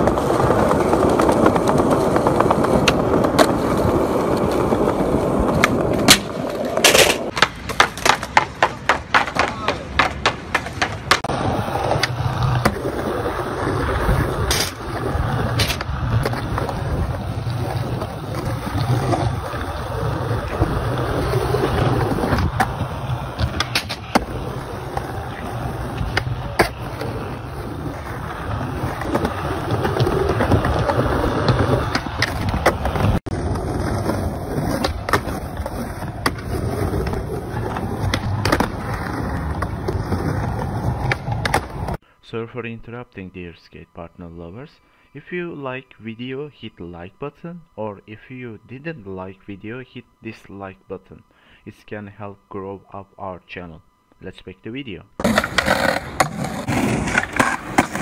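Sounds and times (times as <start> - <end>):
skateboard deck slapping down: 0.0 - 42.0, 55.2 - 58.0
skateboard tail popping: 0.0 - 42.0, 55.2 - 58.0
skateboard wheels rolling on concrete: 0.0 - 42.0, 55.2 - 58.0.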